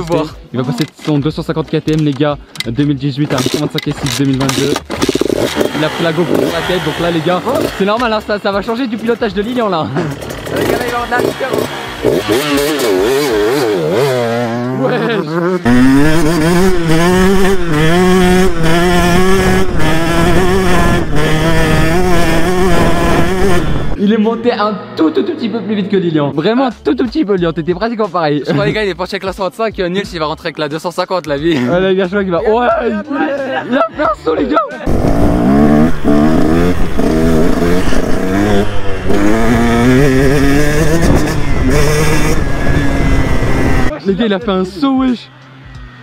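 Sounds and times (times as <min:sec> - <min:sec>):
two-stroke motocross engine running: 0:03.4 - 0:24.0, 0:34.9 - 0:46.0.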